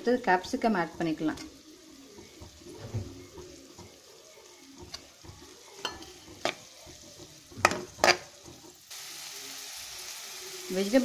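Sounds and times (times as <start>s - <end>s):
vegetables frying with faint sizzle: 0.0s - 11.0s
steel spoon stirring in pan: 0.3s - 9.0s
spoon knocking against pan: 4.8s - 8.8s.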